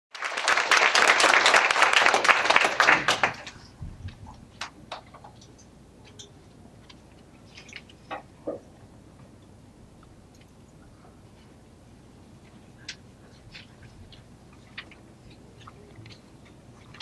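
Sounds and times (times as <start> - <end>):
audience applauding: 0.1 - 3.7.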